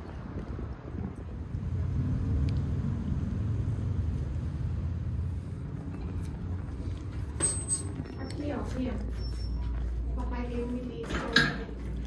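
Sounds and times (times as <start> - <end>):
low outdoor rumble: 0.0 - 12.0.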